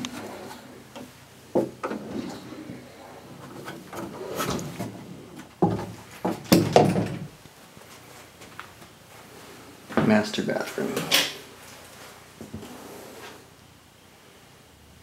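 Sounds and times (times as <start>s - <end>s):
wooden door knocks and bumps: 5.6s - 7.3s.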